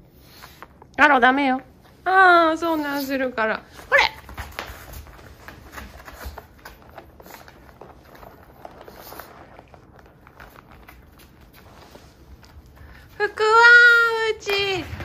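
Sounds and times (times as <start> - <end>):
animal paws tapping on mats: 2.7 - 15.0.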